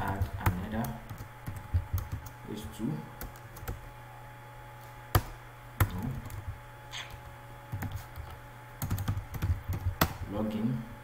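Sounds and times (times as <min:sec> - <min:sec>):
computer keyboard keystrokes: 0:00.0 - 0:02.4, 0:05.1 - 0:06.6, 0:07.7 - 0:10.3
steady low hum: 0:00.0 - 0:11.0.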